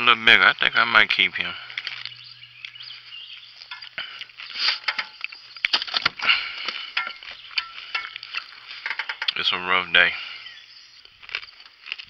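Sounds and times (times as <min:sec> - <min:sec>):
fish and gear being handled: 0:03.6 - 0:09.4.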